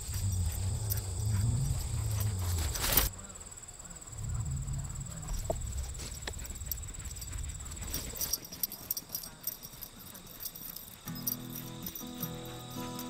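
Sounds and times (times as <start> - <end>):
low rumble: 0.0 - 3.1, 4.1 - 7.9
insects trilling: 0.0 - 13.0.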